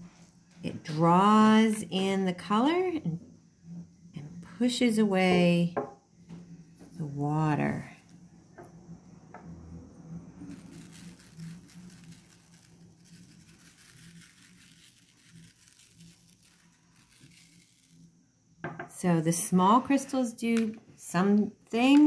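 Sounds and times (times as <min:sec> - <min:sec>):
salt pattering on wet paper: 0:10.4 - 0:18.1.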